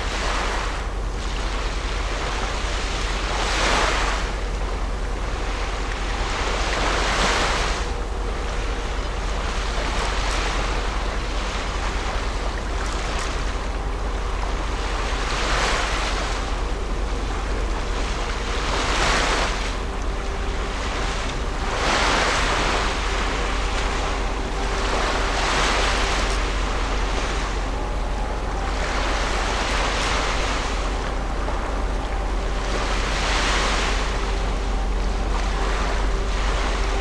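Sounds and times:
ship hum: 0.0s - 37.0s
water washing against shore: 0.0s - 37.0s
low rumble: 4.3s - 37.0s.

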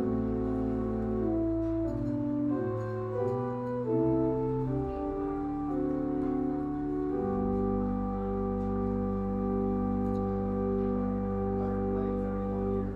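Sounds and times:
church organ chords: 0.0s - 12.9s.

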